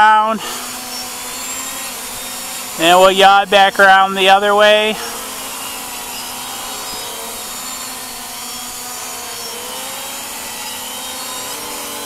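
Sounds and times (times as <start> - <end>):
quadcopter propellers buzzing: 0.0 - 12.0.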